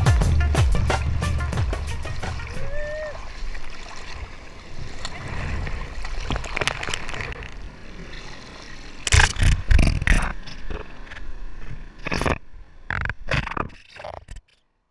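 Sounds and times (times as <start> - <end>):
water sloshing and splashing: 0.8 - 14.2.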